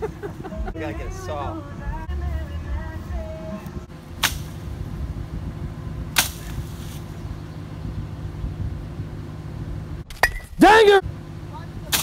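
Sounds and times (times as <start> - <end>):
vehicle engine idling: 0.0 - 12.0
branch whacking a bush: 4.2 - 4.8, 6.1 - 7.2.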